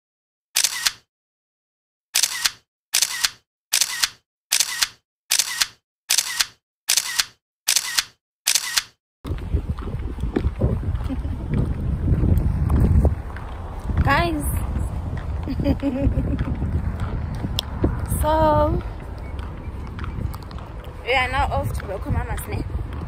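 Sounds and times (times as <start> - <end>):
camera shutter clicking: 0.6 - 1.1, 2.2 - 9.0
wind on microphone: 9.2 - 23.0.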